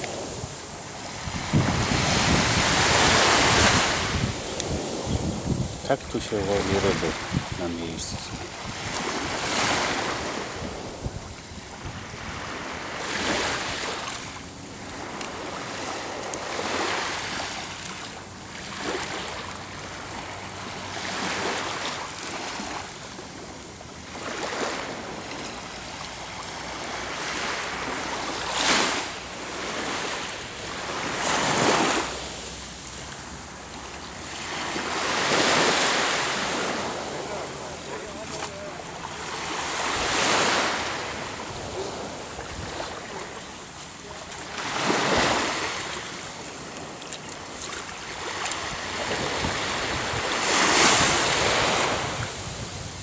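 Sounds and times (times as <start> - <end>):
wind on microphone: 0.0 - 16.7, 39.6 - 43.4, 44.9 - 53.0
small waves breaking on shore: 0.0 - 53.0.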